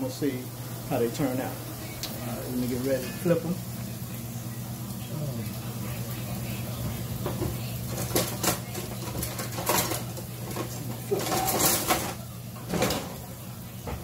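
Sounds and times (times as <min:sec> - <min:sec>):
steady low hum: 0:00.0 - 0:11.1
kitchen utensils knocking and clattering: 0:07.2 - 0:13.2.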